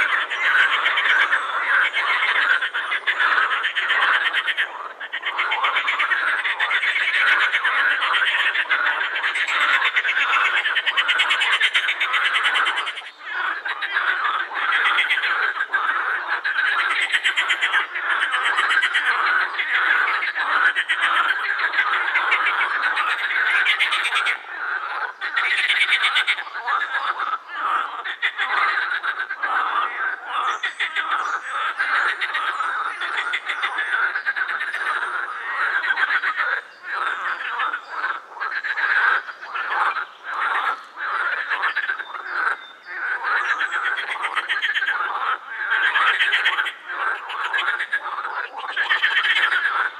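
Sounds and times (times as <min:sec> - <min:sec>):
frogs croaking chorus: 0:00.0 - 0:49.9.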